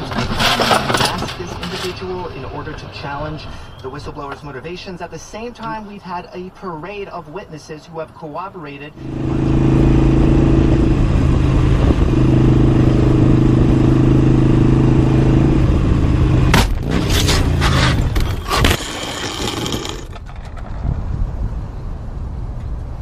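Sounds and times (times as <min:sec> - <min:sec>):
motorcycle crashing: 0:00.0 - 0:02.3, 0:16.5 - 0:21.0
metal and plastic scraping pavement: 0:00.0 - 0:08.9, 0:16.5 - 0:21.5
engine droning: 0:00.0 - 0:23.0.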